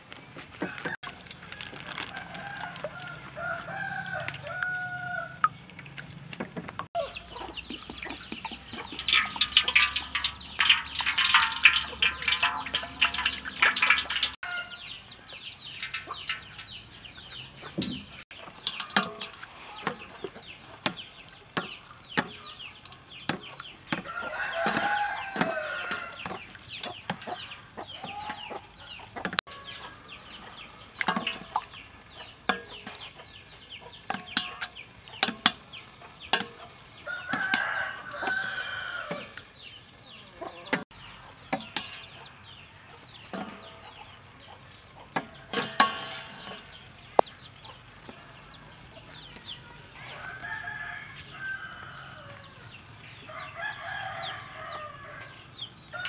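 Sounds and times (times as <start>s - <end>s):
chickens clucking: 0.4s - 56.0s
rooster crowing: 1.6s - 5.5s, 24.1s - 26.2s, 37.0s - 39.3s, 50.0s - 52.5s, 53.3s - 55.3s
wooden spoon tapping metal bowl: 7.6s - 14.4s, 15.7s - 20.1s, 21.6s - 22.4s, 31.0s - 31.7s, 32.5s - 33.0s, 34.1s - 35.7s, 36.3s - 36.6s, 41.5s - 42.2s, 45.2s - 47.3s.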